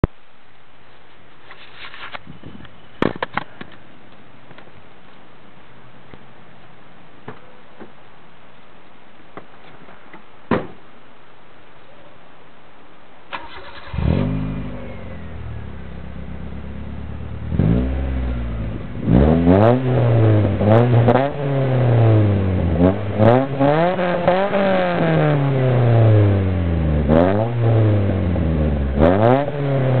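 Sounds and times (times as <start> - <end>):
car engine cranking and revving: 13.3 - 30.0.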